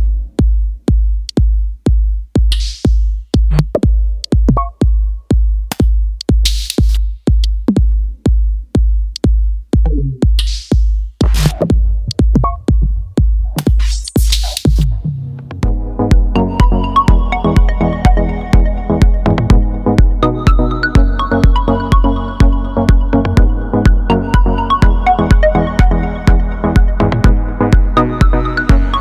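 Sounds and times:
steady kick drum: 0.0s - 29.0s
electronic dance music: 9.7s - 29.0s.

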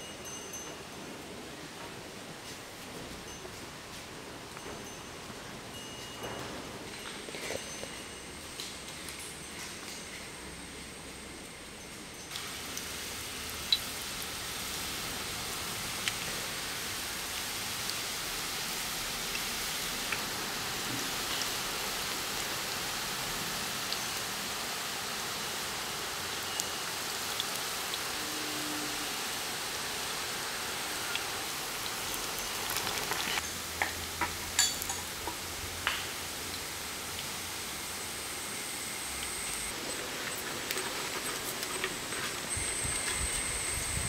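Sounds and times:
deep-frying sizzle: 6.8s - 44.0s
oil crackles: 30.9s - 33.4s, 39.2s - 43.4s.

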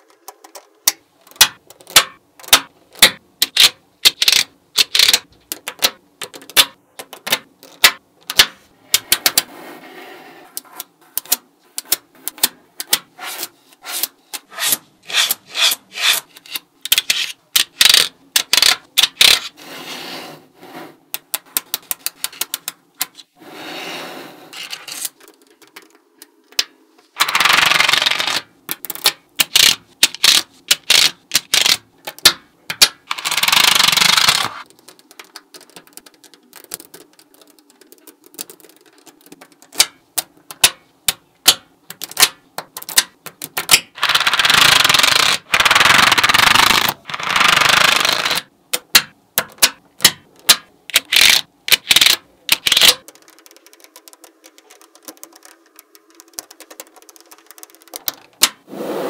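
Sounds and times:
magnetic balls clicking together: 16.6s - 19.4s, 25.0s - 58.6s
magnetic balls rattling: 50.9s - 58.6s.

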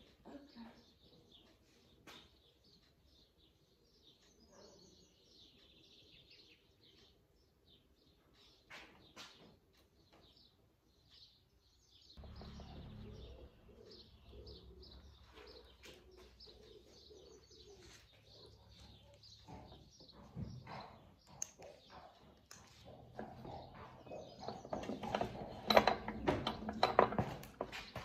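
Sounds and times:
faint birds chirping: 0.0s - 28.0s
pigeon cooing: 13.1s - 19.1s.

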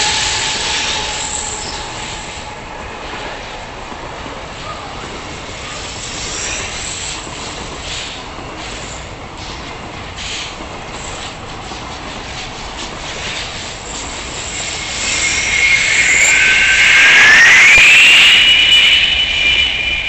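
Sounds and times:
high rising tone: 0.0s - 4.4s, 14.6s - 20.0s
train wheels rumbling on rails: 0.0s - 20.0s.

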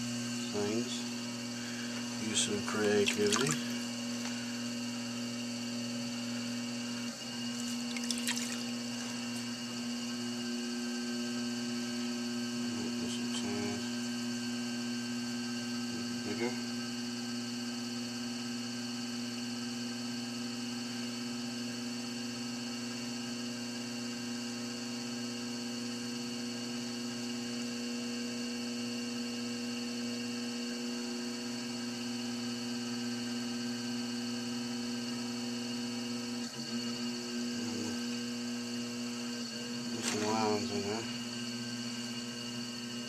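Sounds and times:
potter's wheel humming: 0.0s - 43.0s.

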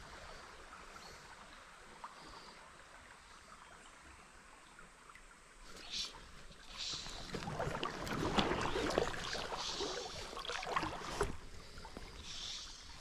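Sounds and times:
water sloshing and splashing: 5.6s - 13.0s.

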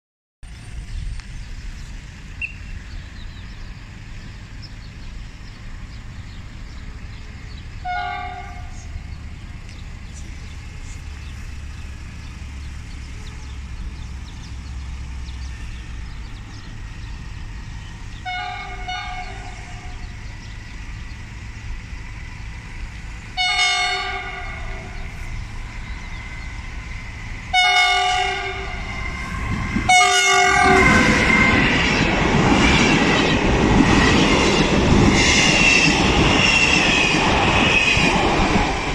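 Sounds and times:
low train rumble: 0.4s - 38.9s
locomotive horn blasts: 7.8s - 9.0s, 18.2s - 20.0s, 23.4s - 25.0s, 27.5s - 31.9s.

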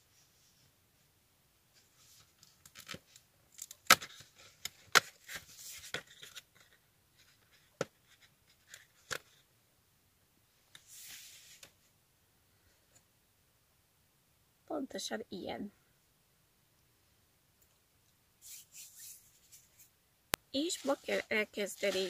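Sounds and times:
paper rustling and tearing: 20.6s - 22.0s.

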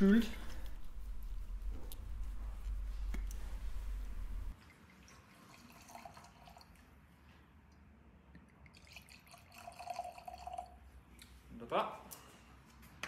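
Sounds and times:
low rumble: 0.0s - 4.6s
liquid trickling into glass: 4.6s - 7.0s, 8.6s - 10.8s.

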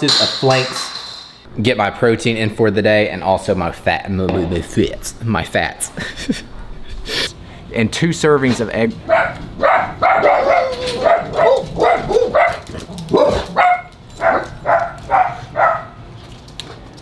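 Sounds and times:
dog barking: 9.1s - 16.0s.

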